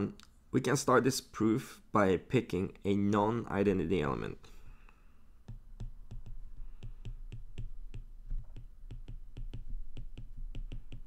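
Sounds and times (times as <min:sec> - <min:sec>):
stylus tapping on glass screen: 0:05.4 - 0:11.0.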